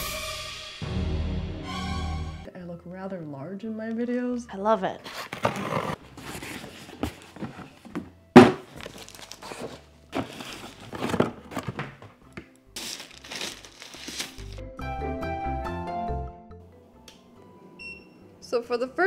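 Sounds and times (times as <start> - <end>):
cardboard rustling and scraping: 5.0 - 12.2, 12.8 - 14.6
plastic wrapping crinkling: 8.6 - 12.0, 12.8 - 14.6.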